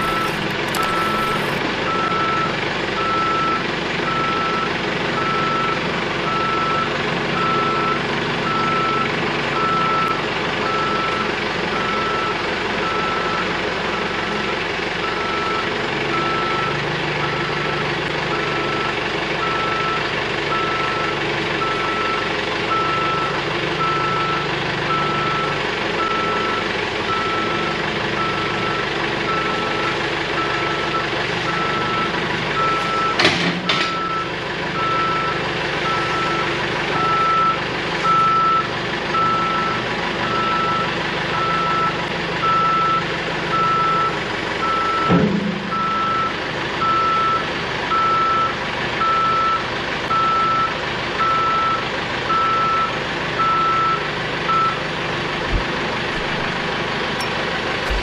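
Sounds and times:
backup alarm beeping: 0:00.0 - 0:02.4, 0:41.4 - 0:54.8, 0:55.5 - 0:58.0
diesel engine running: 0:00.0 - 0:58.0.

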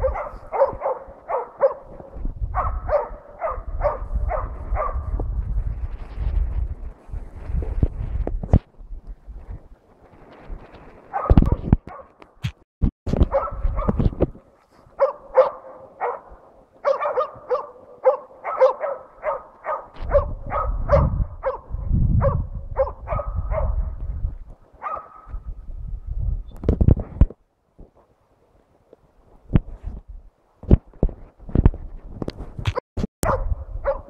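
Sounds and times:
dog barking: 0:00.0 - 0:05.2, 0:11.1 - 0:12.2, 0:13.3 - 0:14.0, 0:15.0 - 0:24.0, 0:24.8 - 0:25.4, 0:33.2 - 0:34.0
wind rumble on microphone: 0:00.0 - 0:17.7, 0:18.7 - 0:28.0, 0:29.3 - 0:34.0.

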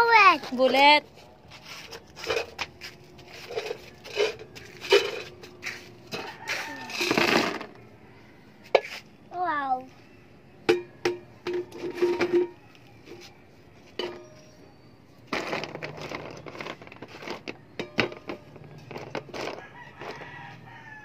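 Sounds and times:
clothespins clattering on tin: 0:03.3 - 0:07.7.

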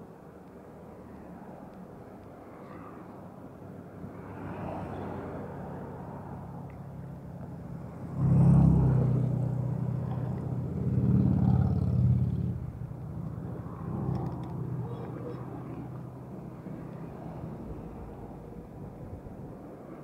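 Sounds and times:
vehicle engine running: 0:09.5 - 0:16.8.

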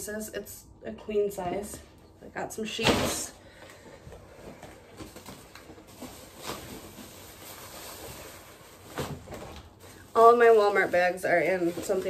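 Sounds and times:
plastic bags rustling: 0:03.1 - 0:12.0.

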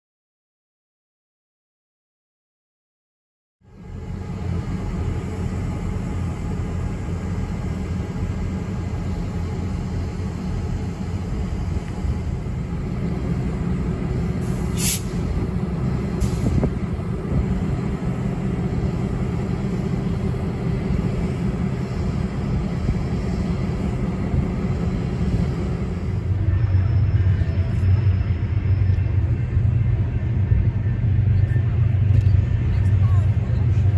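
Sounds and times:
locomotives idling: 0:03.7 - 0:33.9
air hisses: 0:14.4 - 0:15.2.

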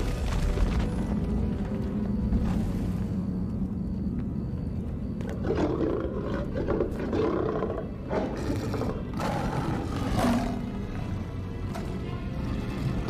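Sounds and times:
lions roaring: 0:05.3 - 0:11.0.

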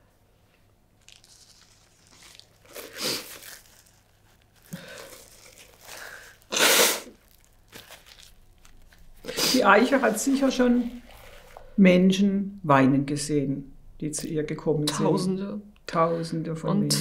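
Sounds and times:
paper tissue rustling: 0:01.0 - 0:11.8
nose blowing: 0:02.7 - 0:03.4, 0:06.1 - 0:07.2.

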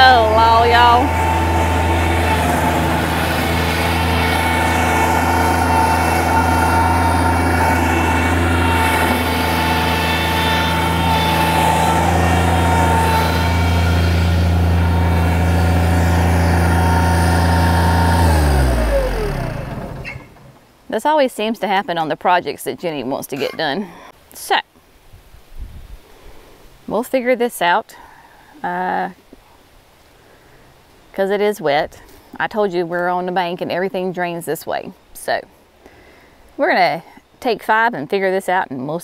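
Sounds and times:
diesel engine running: 0:00.0 - 0:20.7.

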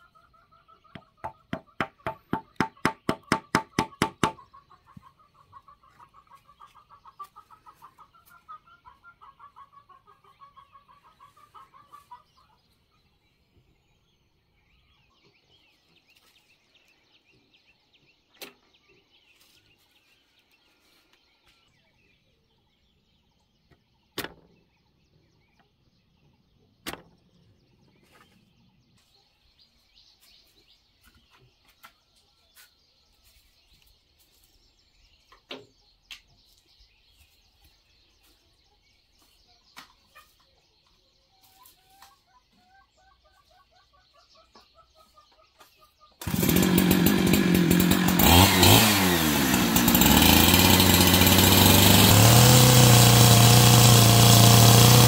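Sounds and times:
chicken clucking: 0:00.0 - 0:13.1, 0:37.6 - 0:46.2
sharp knocks: 0:01.0 - 0:04.4.

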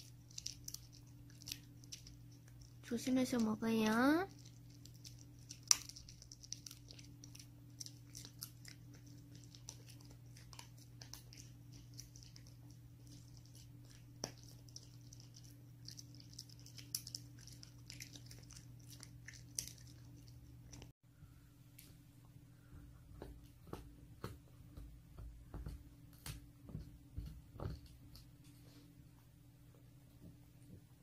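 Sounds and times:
dog chewing crunchy treat: 0:00.0 - 0:03.5, 0:04.3 - 0:20.9
low steady hum: 0:00.0 - 0:31.0.

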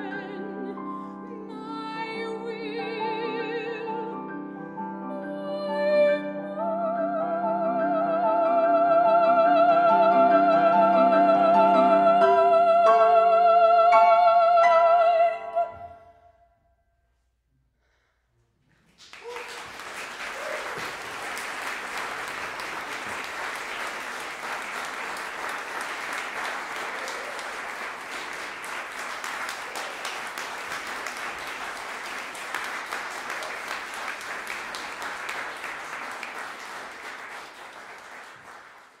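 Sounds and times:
audience applauding: 0:18.9 - 0:39.0.

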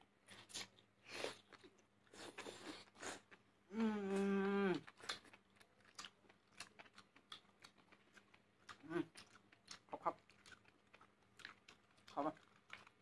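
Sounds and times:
person humming: 0:03.7 - 0:04.9
wet chewing: 0:04.2 - 0:13.0.

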